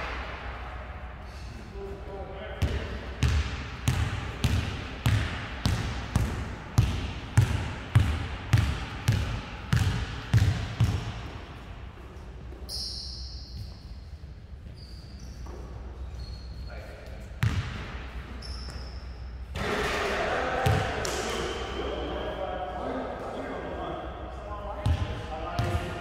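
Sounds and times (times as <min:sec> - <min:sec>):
basketball dribbling on hall floor: 0:02.6 - 0:11.7, 0:24.8 - 0:26.0
sneakers squeaking on floor: 0:12.4 - 0:19.5.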